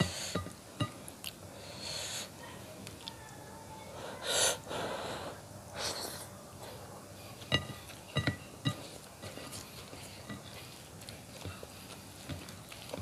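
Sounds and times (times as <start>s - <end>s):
soft breath: 1.5s - 2.4s, 3.8s - 7.4s.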